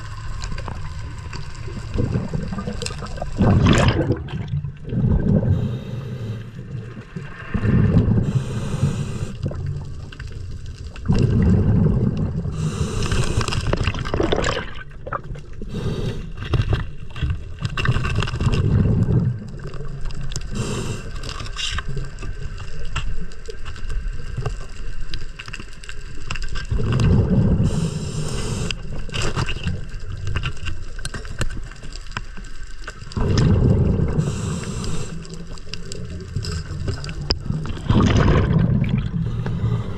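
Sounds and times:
exhaled bubbles gushing: 0.0 - 6.0, 6.6 - 15.8, 17.7 - 22.8, 26.6 - 30.4, 33.0 - 39.9
clicks underwater: 0.6 - 5.5, 9.4 - 15.6, 25.4 - 27.6, 28.6 - 34.3, 35.2 - 39.7.

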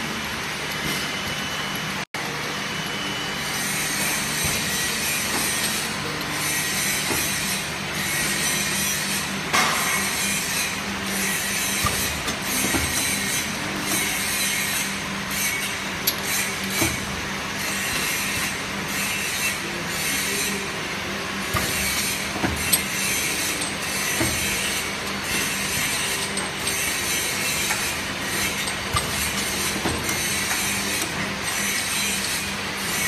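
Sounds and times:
machine clatter: 21.4 - 33.0
sharp clicks and knocks: 21.5 - 31.3.

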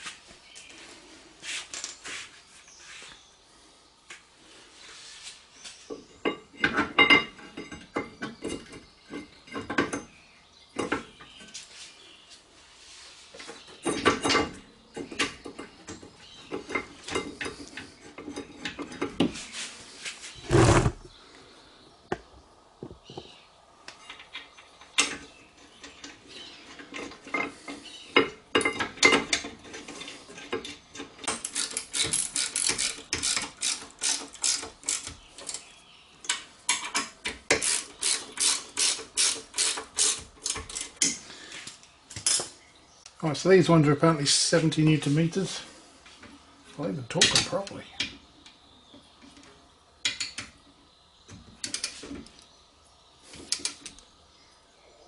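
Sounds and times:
metal clanks and knocks: 6.3 - 10.2, 13.8 - 19.4, 28.2 - 33.5
hand ratchet clicking rapidly: 37.6 - 40.2.

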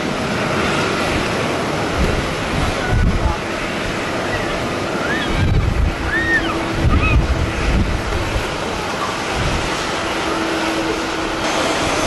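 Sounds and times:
jet airliner roaring: 0.0 - 12.0
wind buffeting the microphone: 0.0 - 12.0.

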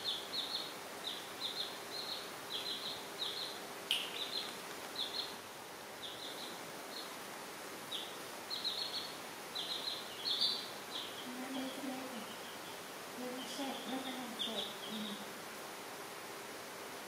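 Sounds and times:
chicks peeping: 0.0 - 15.3
sharp click: 3.9 - 4.9.

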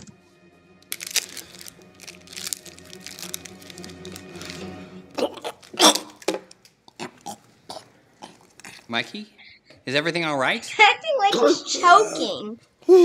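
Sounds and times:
soft background music: 0.0 - 6.2
boy making choking sounds: 5.2 - 6.2, 11.3 - 13.0.

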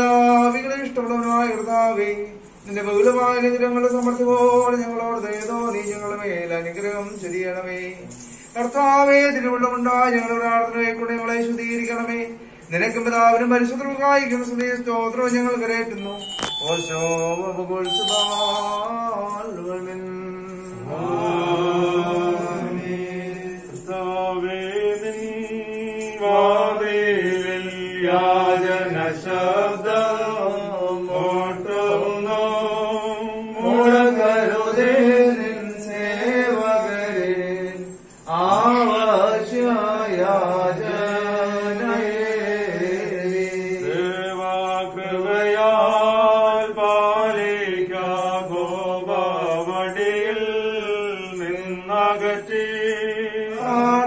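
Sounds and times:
held accompaniment tone: 15.6 - 54.0
voices singing a hymn: 20.6 - 54.0.

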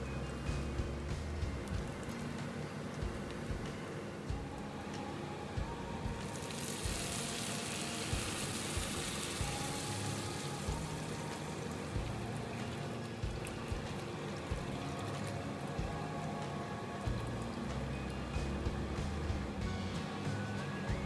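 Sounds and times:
soft background music: 0.0 - 21.0
water sizzling in hot wok: 0.4 - 21.0
water pouring: 6.1 - 20.0.

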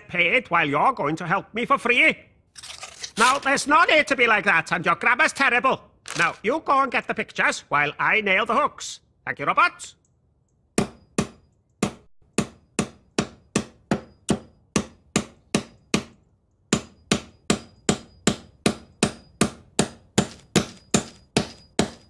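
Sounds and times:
hammer striking nails: 10.8 - 22.0.

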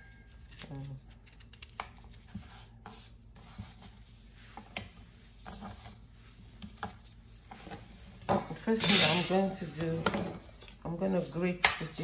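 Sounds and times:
knife scraping ginger: 0.1 - 4.0.

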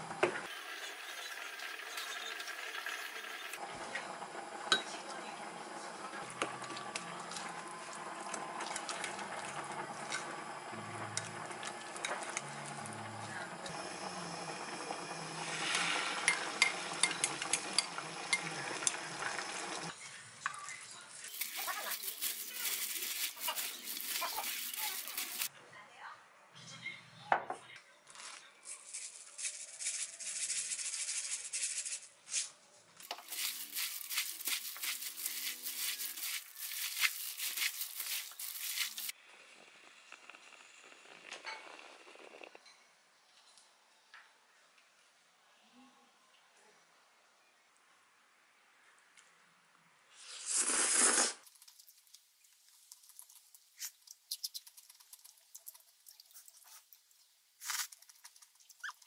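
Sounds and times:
noodles tossed in steel bowl: 21.3 - 25.5, 33.0 - 39.1
seeds rattling out of container: 21.3 - 25.5, 28.2 - 39.1, 57.6 - 59.0
person slurping noodles: 50.2 - 51.4
soft chewing and mouth clicks: 51.4 - 57.2.

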